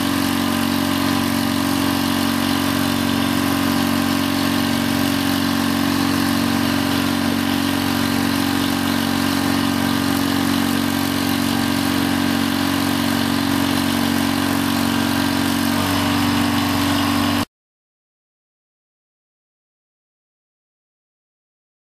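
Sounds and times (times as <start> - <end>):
hydraulic pump humming: 0.0 - 17.5.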